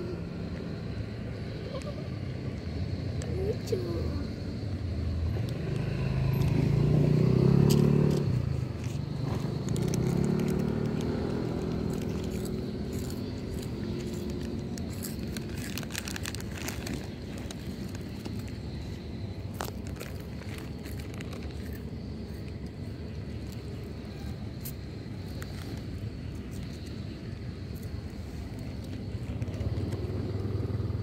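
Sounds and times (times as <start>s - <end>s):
cats crunching dry kibble: 7.7s - 30.0s.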